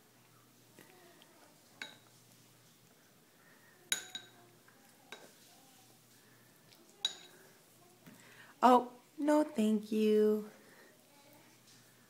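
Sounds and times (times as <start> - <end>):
spoon clinking on ceramic bowl: 1.8 - 2.1, 3.9 - 4.4, 7.0 - 7.4.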